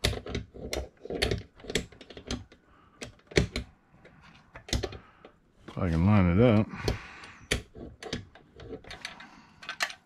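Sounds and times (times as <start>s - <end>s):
metal toy clicking and knocking: 0.0s - 3.7s, 6.8s - 10.0s.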